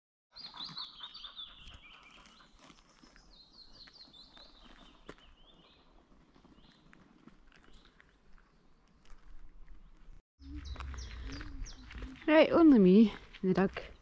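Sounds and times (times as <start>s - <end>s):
songbirds singing: 0.3s - 7.0s, 9.8s - 12.7s
footsteps on path: 0.6s - 14.0s.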